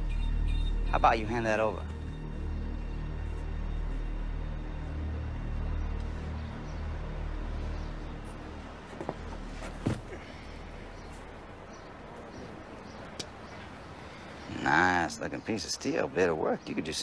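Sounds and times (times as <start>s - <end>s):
low ominous music drone: 0.0s - 9.6s.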